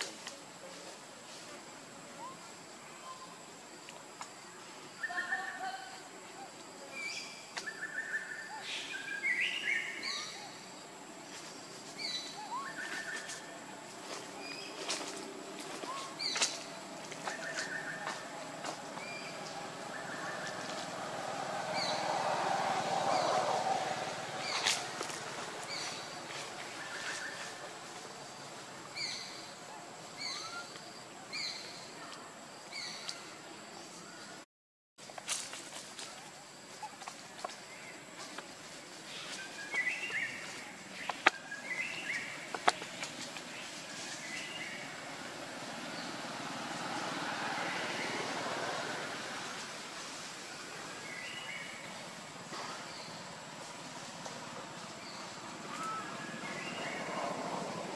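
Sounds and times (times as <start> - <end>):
steady background hiss: 0.0 - 34.4, 35.0 - 57.9
high chirping calls: 11.9 - 21.0.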